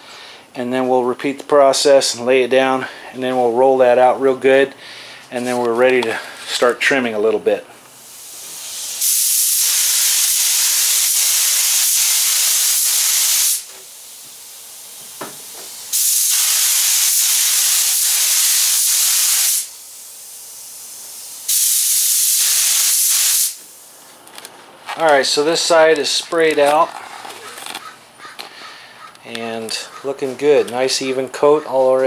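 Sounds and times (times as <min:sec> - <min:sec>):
spray gun hissing: 0:08.0 - 0:24.0.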